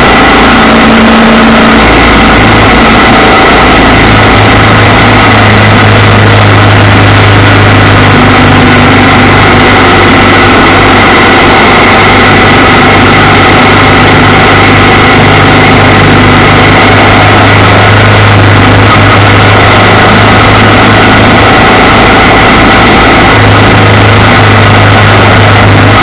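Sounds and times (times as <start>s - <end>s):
motorcycle engine running: 0.0s - 26.0s
wind and road noise: 0.0s - 26.0s.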